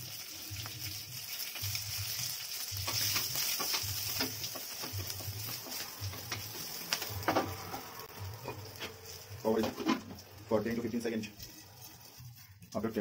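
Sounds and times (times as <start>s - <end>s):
onions sizzling in oil: 0.0s - 13.0s
spatula scraping a pan: 8.4s - 10.3s.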